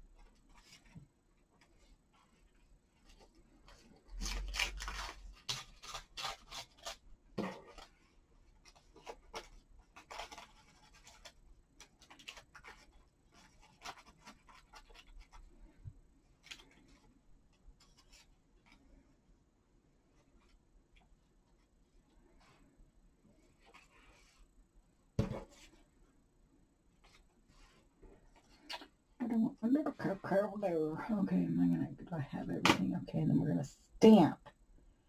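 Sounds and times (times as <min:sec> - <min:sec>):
paper crumpling and rustling: 0:00.2 - 0:18.9.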